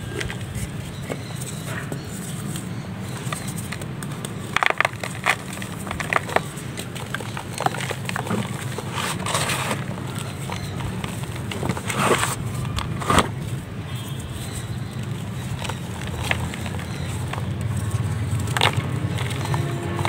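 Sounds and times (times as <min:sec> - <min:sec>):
hands crumbling cement chunks: 0:02.0 - 0:13.4.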